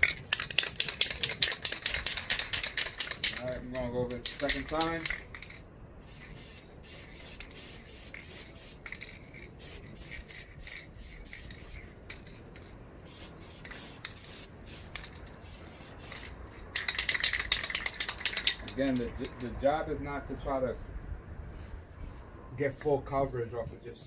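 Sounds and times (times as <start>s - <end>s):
spray paint can hissing: 0.0s - 19.3s, 21.4s - 22.2s.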